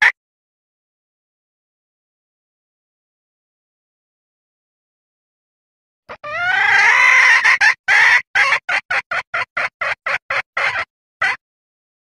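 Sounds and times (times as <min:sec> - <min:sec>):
junglefowl hen calling: 0:06.1 - 0:11.4
short clucks: 0:07.3 - 0:11.4.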